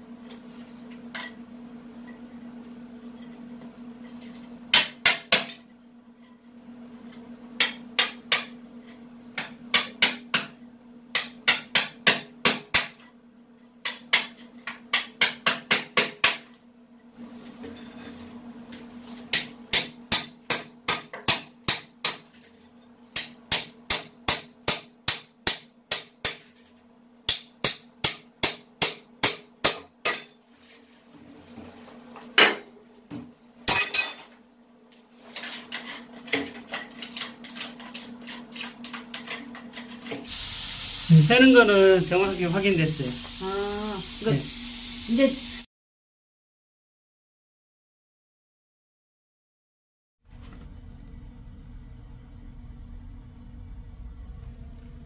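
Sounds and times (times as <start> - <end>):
faint low hum: 50.3 - 55.0.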